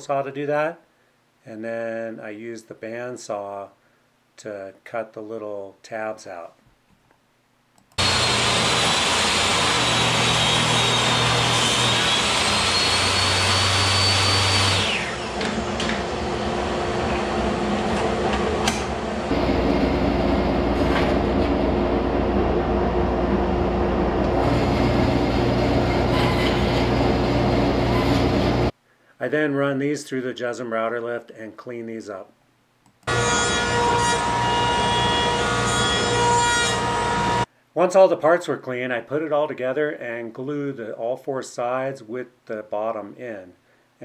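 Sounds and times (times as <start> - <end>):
table saw ripping wood: 8.0 - 19.0, 24.3 - 28.7, 33.1 - 37.5
band saw cutting wood: 8.0 - 19.5, 24.3 - 28.7, 33.1 - 37.5.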